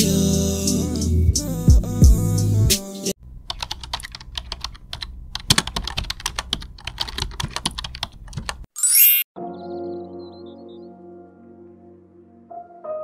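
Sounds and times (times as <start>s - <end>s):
keyboard key clicks: 3.5s - 8.6s.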